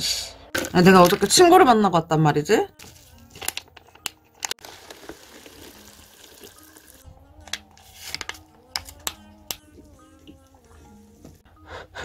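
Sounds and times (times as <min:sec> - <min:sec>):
light background music: 0:00.0 - 0:12.0
seasoning packets crinkling: 0:04.4 - 0:07.0
hot water pouring into cup: 0:04.6 - 0:07.0.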